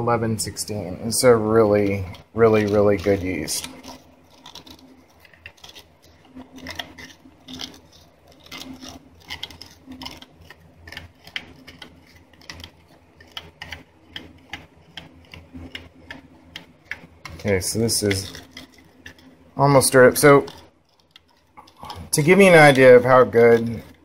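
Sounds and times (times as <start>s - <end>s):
metal spoon stirring in metal cup: 1.1s - 24.0s.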